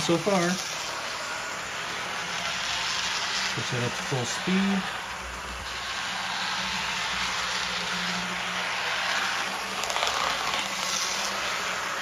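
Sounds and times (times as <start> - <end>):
model train motor hum: 0.0 - 12.0
wheels rolling on rails: 0.0 - 12.0.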